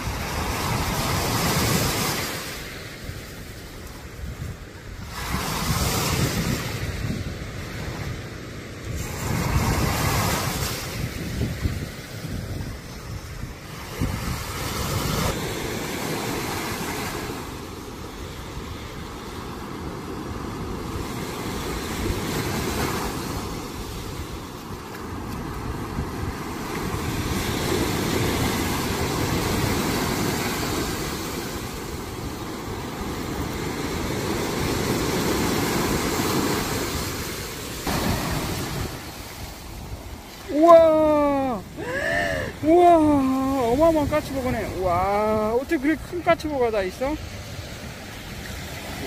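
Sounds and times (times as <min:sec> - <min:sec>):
surf breaking on sand: 0:00.0 - 0:49.0
wind buffeting microphone: 0:03.0 - 0:49.0.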